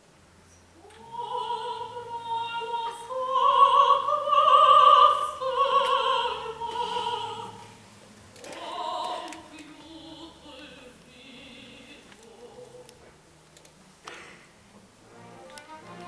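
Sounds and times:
woman singing opera: 0.8s - 7.8s, 8.4s - 13.1s
soft orchestral accompaniment: 14.7s - 16.0s.

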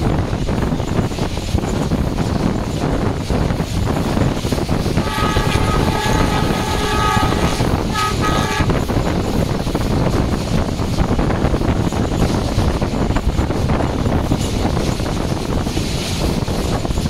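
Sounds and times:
train wheel rumble: 0.0s - 17.0s
wind on microphone: 0.0s - 17.0s
locomotive horn blasts: 5.0s - 8.9s.

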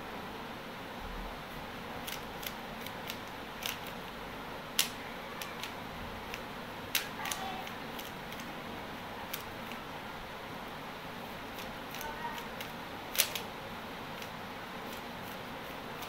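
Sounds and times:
steady background hiss: 0.0s - 16.0s
plastic puzzle cube clicks: 2.0s - 4.1s, 4.8s - 8.5s, 9.3s - 9.8s, 11.6s - 13.5s
loud plastic clacks: 11.6s - 13.5s.

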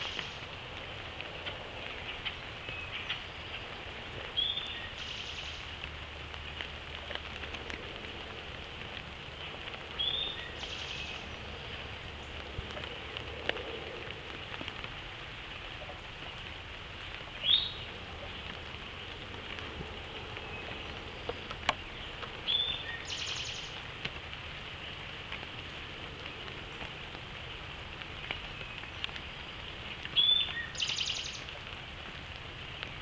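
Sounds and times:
rain pattering: 0.0s - 33.0s
bird chirps: 17.4s - 17.9s, 20.4s - 23.8s, 30.1s - 31.5s.

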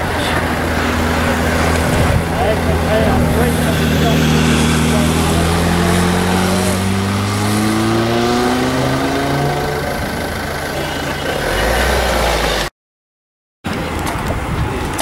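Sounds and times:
rushing noise: 0.0s - 12.7s
motorcycle engine accelerating past: 1.1s - 10.2s.

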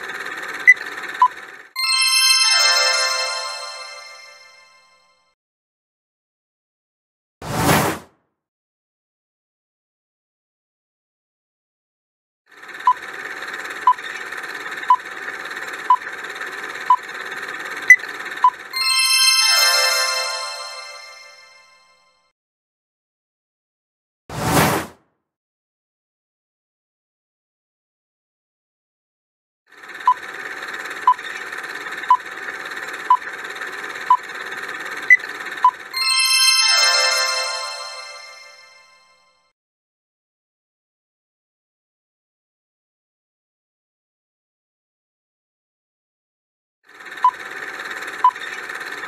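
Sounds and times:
bright many-toned chime: 1.8s - 5.2s, 18.8s - 22.0s, 36.0s - 39.2s.

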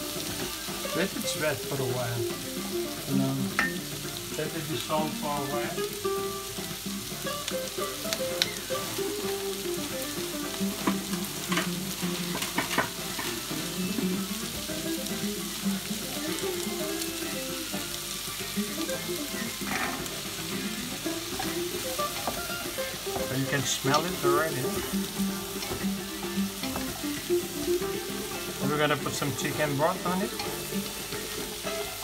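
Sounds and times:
vegetables sizzling in pot: 0.0s - 32.0s
wooden spoon stirring vegetables: 18.7s - 32.0s.

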